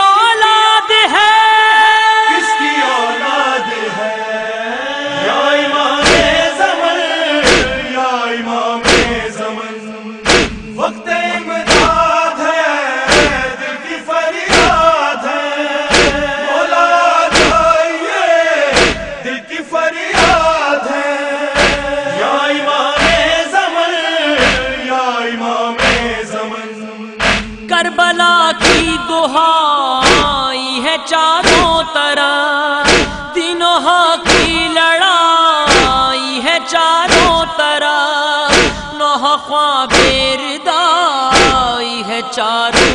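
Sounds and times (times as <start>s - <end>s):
men chanting: 0.0s - 42.9s
chest-beating slaps: 6.0s - 6.5s, 7.4s - 7.9s, 8.8s - 9.3s, 10.2s - 10.8s, 11.6s - 12.2s, 13.1s - 13.6s, 14.5s - 14.9s, 15.9s - 16.4s, 17.3s - 17.8s, 18.7s - 19.2s, 20.2s - 20.6s, 21.6s - 22.0s, 23.0s - 23.4s, 24.4s - 24.8s, 25.8s - 26.2s, 27.2s - 27.7s, 28.6s - 29.0s, 30.0s - 30.5s, 31.4s - 31.8s, 32.8s - 33.3s, 34.3s - 34.7s, 35.7s - 36.1s, 37.1s - 37.5s, 38.5s - 38.9s, 39.9s - 40.3s, 41.3s - 41.7s.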